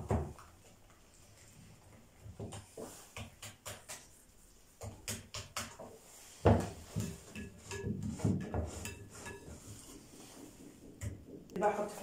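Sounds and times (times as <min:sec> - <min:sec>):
whisk beating batter in a bowl: 0:02.8 - 0:11.1.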